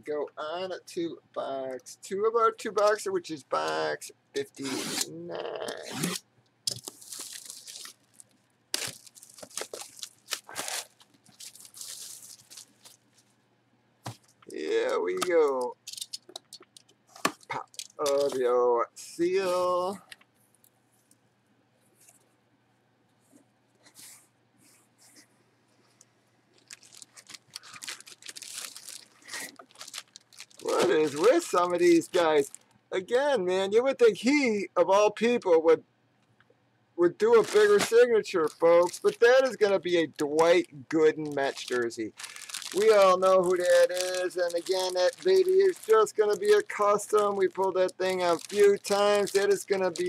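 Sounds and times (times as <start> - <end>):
plastic shrink wrap tearing: 5.7 - 13.2, 15.2 - 18.4, 26.6 - 32.7, 37.2 - 39.7, 40.4 - 50.0
plastic bag crinkling: 6.7 - 13.3, 15.2 - 18.5, 26.5 - 32.7, 37.2 - 50.0.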